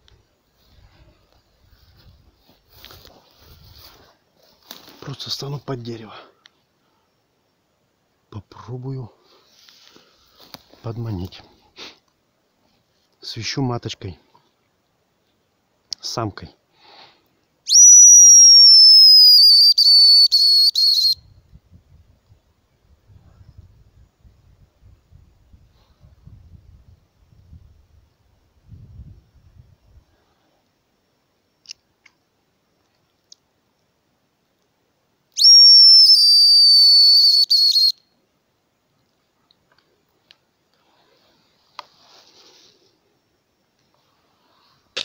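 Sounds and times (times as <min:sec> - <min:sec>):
high thin bird call whistle: 0:17.7 - 0:21.4, 0:35.4 - 0:38.1.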